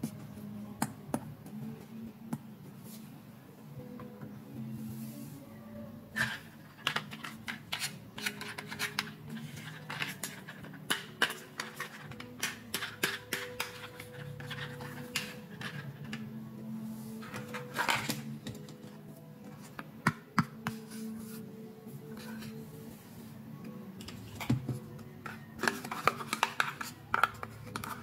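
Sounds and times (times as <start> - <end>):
plastic toys clicking and rattling: 6.2 - 16.2.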